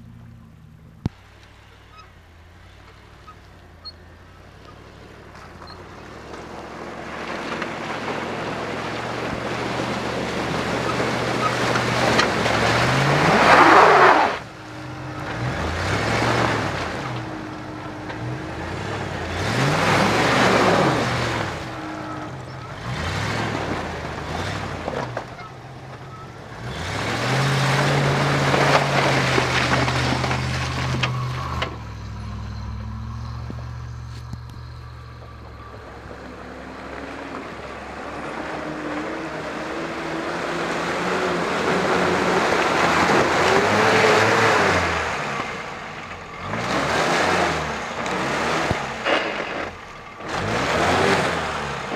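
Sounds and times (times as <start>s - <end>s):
off-road engines revving in mud: 0.0s - 51.9s.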